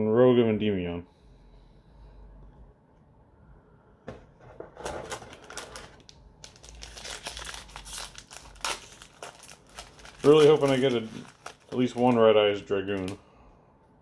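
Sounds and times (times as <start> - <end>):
plastic and foil packaging crinkling: 4.8 - 13.2.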